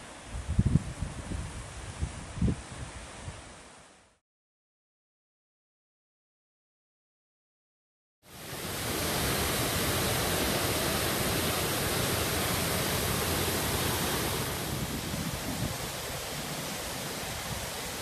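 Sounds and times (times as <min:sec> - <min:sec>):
creek rushing over rocks: 0:08.3 - 0:18.0.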